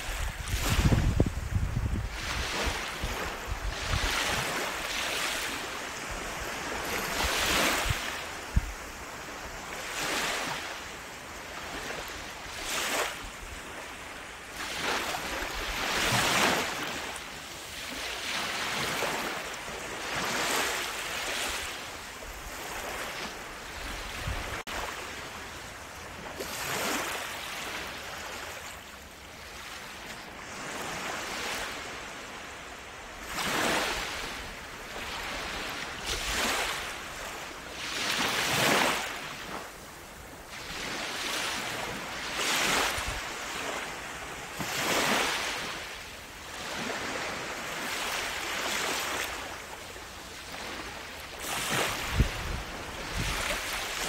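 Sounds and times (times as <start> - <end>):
sea waves breaking on shore: 0.0 - 54.0.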